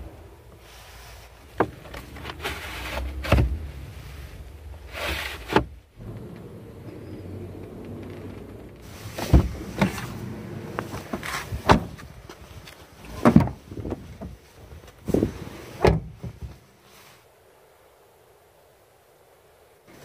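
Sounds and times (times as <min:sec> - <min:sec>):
low steady hum: 0:00.0 - 0:20.0
car door knocks and thumps: 0:09.2 - 0:12.1, 0:13.2 - 0:14.4, 0:15.1 - 0:16.6.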